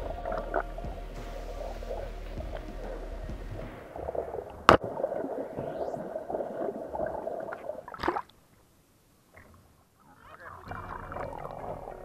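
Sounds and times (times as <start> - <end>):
muffled underwater bubbling: 10.4 - 12.0.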